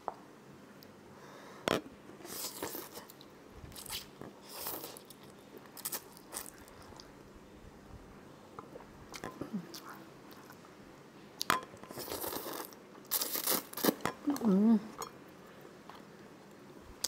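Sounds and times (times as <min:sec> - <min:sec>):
slurping and chewing noodles: 0:11.9 - 0:14.0.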